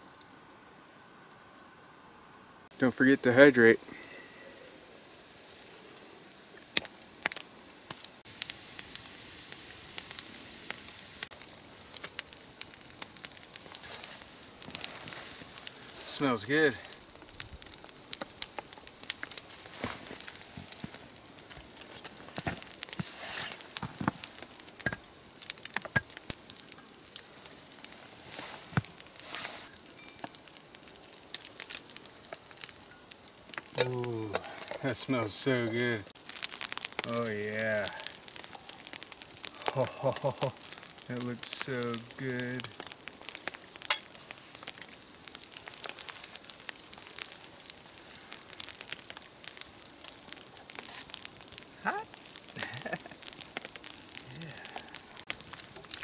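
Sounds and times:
campfire crackling and popping: 0.0s - 0.8s, 2.4s - 56.0s
faint hiss: 0.0s - 56.0s
footsteps crunching in snow: 19.4s - 24.3s, 28.0s - 29.8s.

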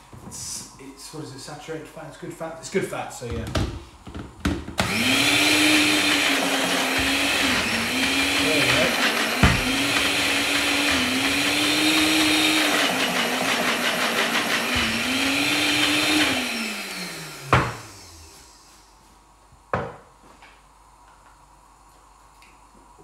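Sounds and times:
blender motor running: 4.8s - 18.6s.

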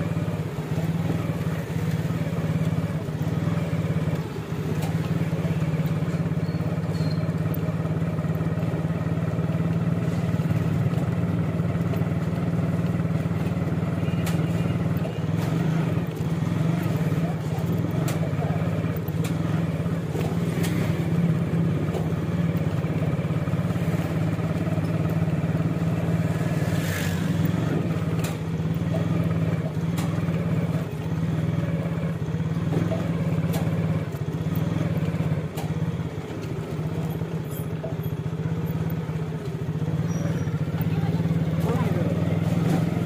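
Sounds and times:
street traffic: 0.0s - 43.0s
vehicle engine running: 0.0s - 43.0s.

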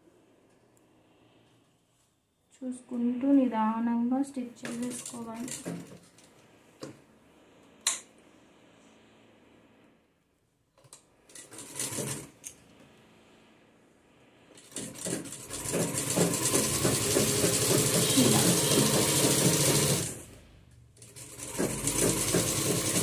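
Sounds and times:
sewing machine stitching: 4.7s - 6.3s, 11.3s - 12.5s, 14.6s - 20.4s, 21.0s - 23.0s.

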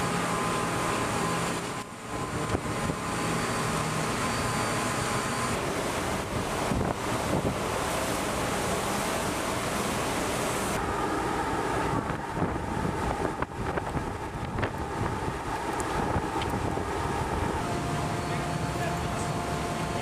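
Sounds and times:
faint machinery hum: 0.0s - 20.0s
sea water churning: 0.0s - 20.0s
wind buffeting microphone: 6.2s - 7.8s, 10.8s - 17.7s.

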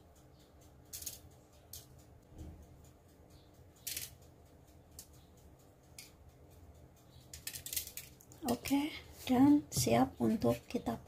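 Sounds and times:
seeds pattering on dough and foil: 3.5s - 11.0s.

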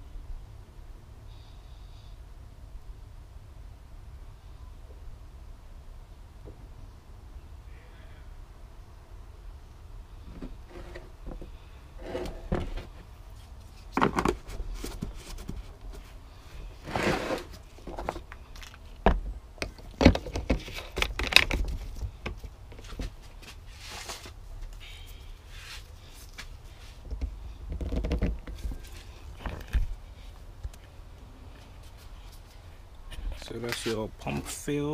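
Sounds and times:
plastic jug knocks and scrapes: 14.0s - 15.7s, 27.1s - 28.7s.

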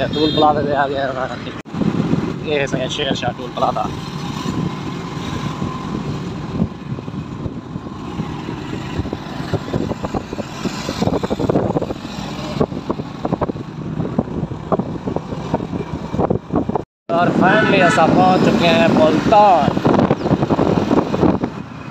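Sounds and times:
vehicle road and engine rumble: 0.0s - 21.9s.

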